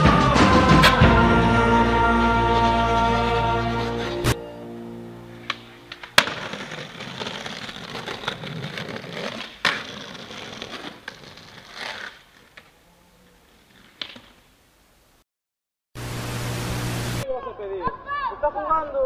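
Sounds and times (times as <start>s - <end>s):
skateboard wheels rolling on asphalt: 5.3s - 14.7s
skateboard clack: 5.4s - 12.7s, 13.5s - 14.4s.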